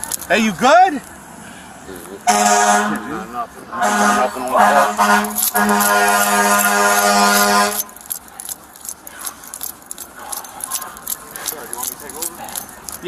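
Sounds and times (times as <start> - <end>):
jingling and clicking: 0.0 - 0.4, 5.2 - 13.0
vehicle horn low tone: 2.3 - 3.2, 3.8 - 7.8.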